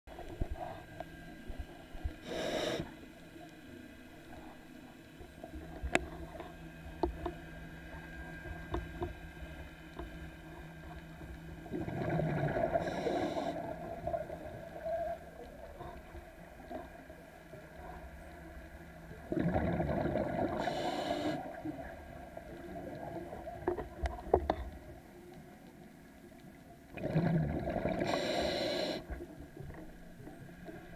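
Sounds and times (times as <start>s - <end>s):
low steady hum: 0.1s - 30.9s
exhaled bubbles rushing underwater: 11.6s - 17.0s, 19.1s - 24.4s, 26.9s - 29.4s.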